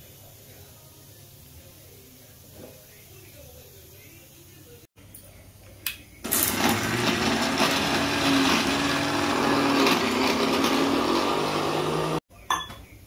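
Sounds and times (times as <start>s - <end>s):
mixer grinder motor whirring: 6.3s - 12.2s.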